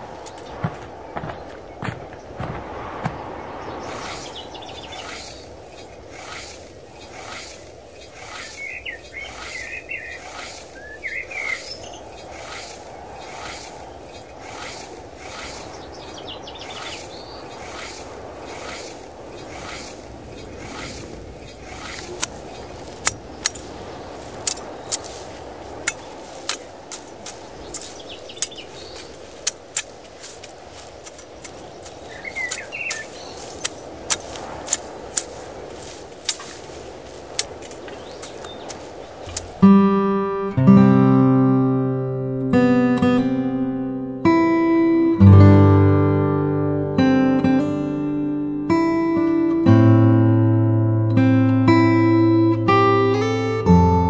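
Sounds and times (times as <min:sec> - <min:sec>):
bird chirping: 0:00.2 - 0:23.8, 0:27.5 - 0:29.3, 0:31.2 - 0:34.0, 0:37.8 - 0:40.6.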